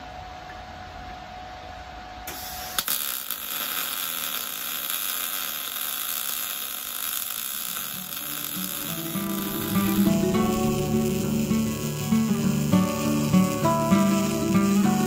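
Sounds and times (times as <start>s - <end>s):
welder arc crackling and hissing: 2.3s - 15.0s
music: 8.0s - 15.0s.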